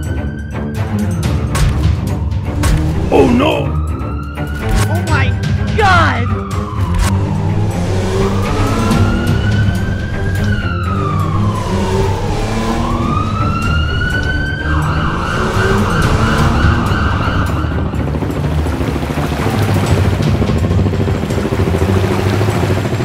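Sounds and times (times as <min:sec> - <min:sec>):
cartoon siren wailing: 0:05.8 - 0:18.0.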